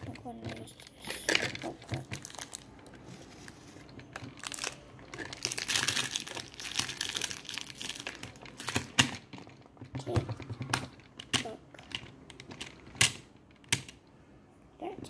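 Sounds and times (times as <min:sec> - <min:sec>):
plastic wrapping crinkling: 0:01.3 - 0:09.8.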